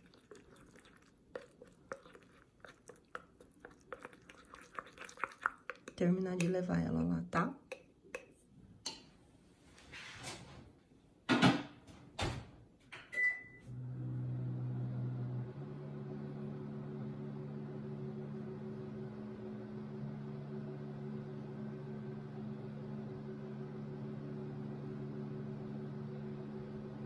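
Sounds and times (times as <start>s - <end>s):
microwave humming: 13.0s - 27.0s
keypad beep: 13.2s - 13.6s.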